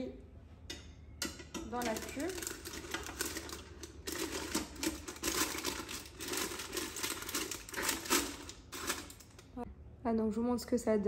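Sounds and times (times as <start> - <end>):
baking paper rustling and crinkling: 1.7 - 9.6.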